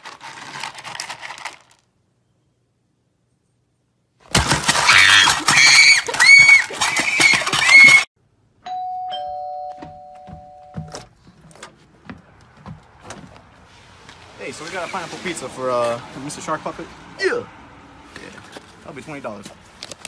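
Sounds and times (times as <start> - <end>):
two-tone doorbell chime: 8.6 - 11.0.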